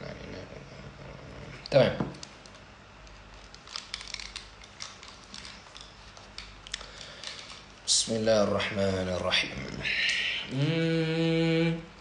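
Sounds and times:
headphones handled clicks and rustles: 2.1 - 7.9.

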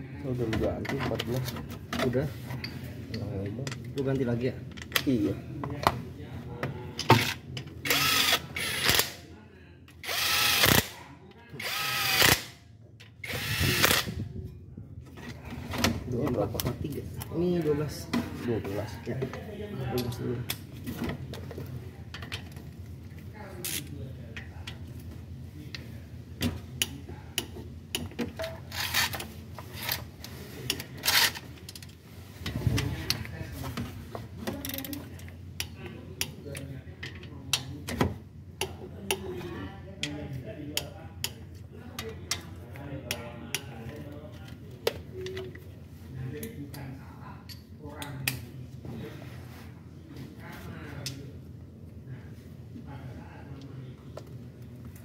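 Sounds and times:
impact wrench bursts: 7.2 - 9.2, 10.0 - 11.0, 11.6 - 12.6, 13.2 - 14.1.

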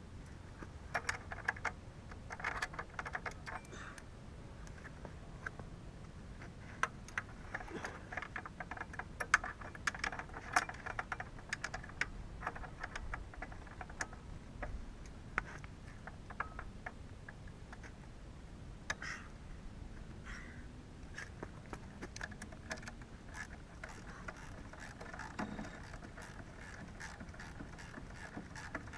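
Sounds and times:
hand tools clicking on metal bolts: 21.2 - 28.9.

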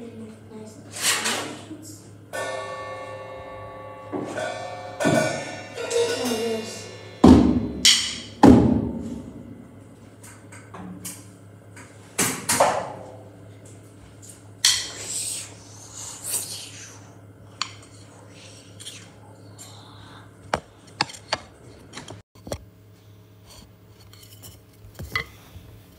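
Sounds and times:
ringing drum strikes: 2.3 - 9.6
drum kit clinks and knocks: 4.1 - 9.4.

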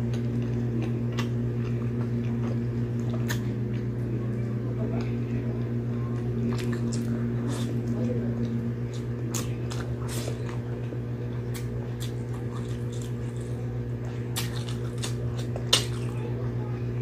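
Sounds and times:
wet chewing: 0.0 - 16.4
steady low hum: 0.0 - 17.0.

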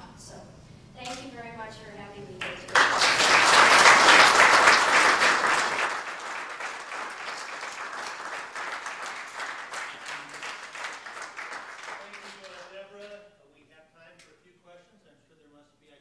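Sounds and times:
audience applauding: 2.4 - 13.2.

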